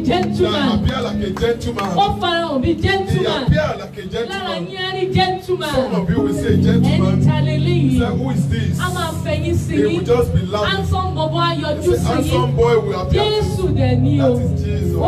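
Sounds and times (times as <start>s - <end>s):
sustained low bass notes: 0.0s - 4.2s, 5.1s - 15.0s
amplified instrumental backing: 0.0s - 15.0s
woman singing into a microphone: 13.1s - 14.4s.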